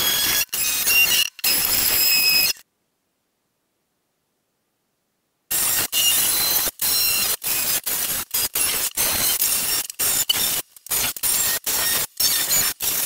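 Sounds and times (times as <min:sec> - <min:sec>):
oscillating tool grinding grout: 0:05.5 - 0:13.0.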